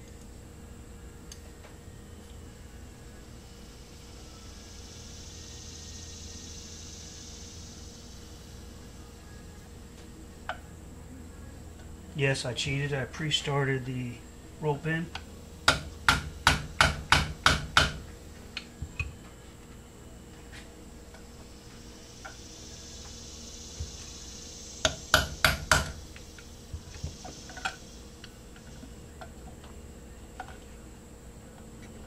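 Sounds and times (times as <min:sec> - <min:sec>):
hammer tapping a punch: 0:15.6 - 0:18.0, 0:24.8 - 0:26.0.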